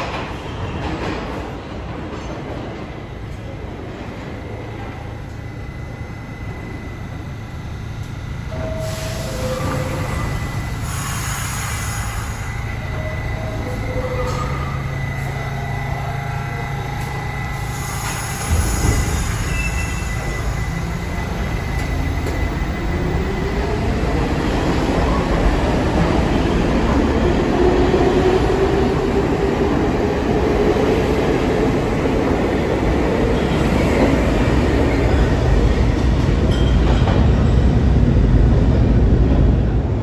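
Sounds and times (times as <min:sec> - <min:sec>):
subway train rumbling: 0:00.0 - 0:40.0
train wheel squeals: 0:08.5 - 0:26.1.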